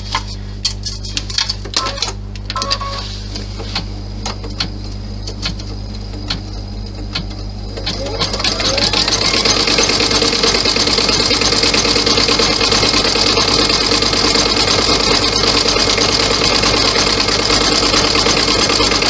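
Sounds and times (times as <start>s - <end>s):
steady low hum: 0.0s - 12.3s
embroidery machine stitching: 7.1s - 19.0s.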